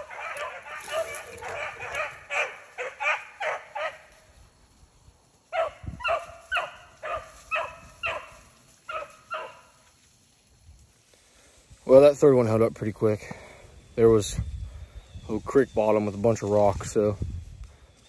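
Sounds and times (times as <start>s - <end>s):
dogs barking and baying: 0.0s - 4.1s, 5.5s - 9.8s.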